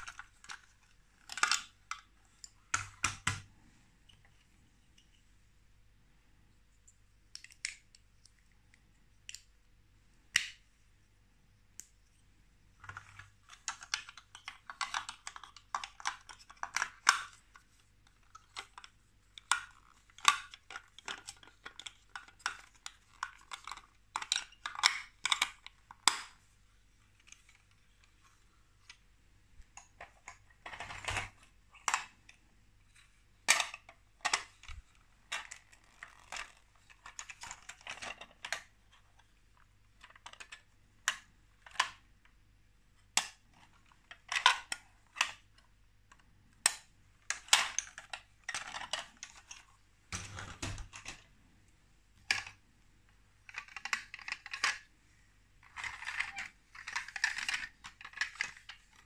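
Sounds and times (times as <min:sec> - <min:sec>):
plastic bricks clicking and clattering: 0:00.0 - 0:04.3, 0:12.8 - 0:26.5, 0:29.6 - 0:42.1, 0:43.1 - 0:51.3, 0:52.2 - 0:52.6, 0:53.4 - 0:55.0, 0:55.6 - 0:59.0.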